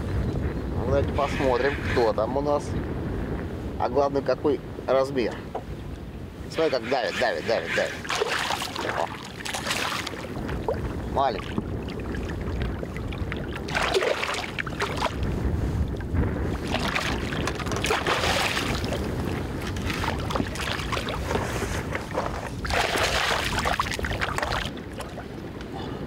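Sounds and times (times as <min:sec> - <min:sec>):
wind noise on microphone: 0:00.0 - 0:26.0
fish splashing in water: 0:08.0 - 0:15.2, 0:16.6 - 0:25.3.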